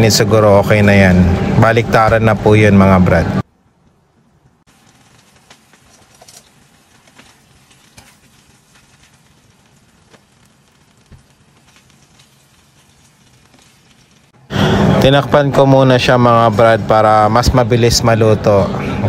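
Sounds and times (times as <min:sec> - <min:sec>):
chicken sizzling in frying pan: 0:04.7 - 0:14.4
metal tongs turning meat: 0:05.1 - 0:09.3.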